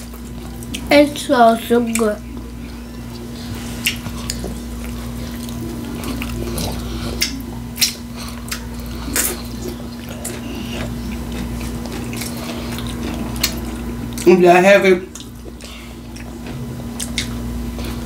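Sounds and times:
person chewing: 0:00.0 - 0:01.2, 0:01.8 - 0:14.4, 0:15.1 - 0:18.0
low electrical hum: 0:00.0 - 0:18.0
wet mouth clicks and smacks: 0:03.8 - 0:04.4, 0:17.0 - 0:17.3.

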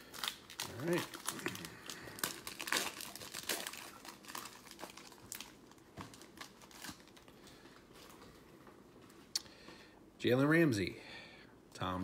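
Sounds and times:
foil wrapper tearing and crinkling: 0:00.0 - 0:07.4.

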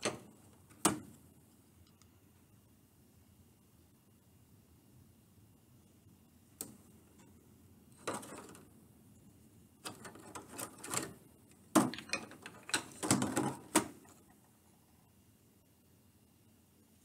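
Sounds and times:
wooden pieces clicking and clattering: 0:09.8 - 0:14.3.

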